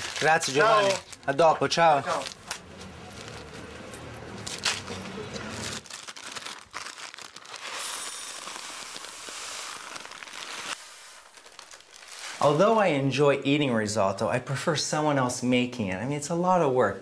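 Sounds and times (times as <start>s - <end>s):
paper bag crinkling: 0.0s - 12.8s
rice pouring into glass bowl: 7.5s - 12.4s.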